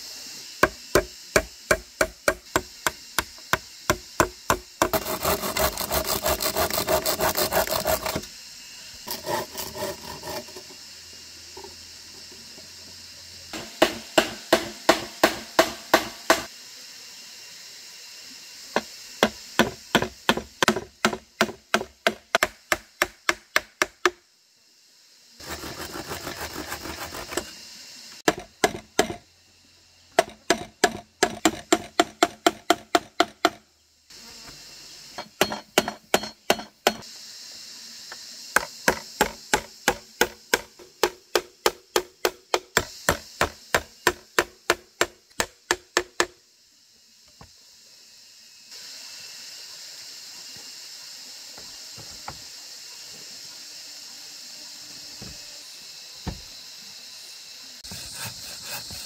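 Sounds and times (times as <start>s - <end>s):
hand tool striking wood: 0.6s - 8.3s, 13.6s - 16.5s, 18.8s - 24.2s, 28.3s - 29.2s, 30.2s - 33.6s, 35.2s - 37.0s, 38.5s - 46.4s
hand sawing timber: 0.7s - 8.3s, 9.1s - 10.7s, 25.4s - 27.5s, 57.8s - 59.0s.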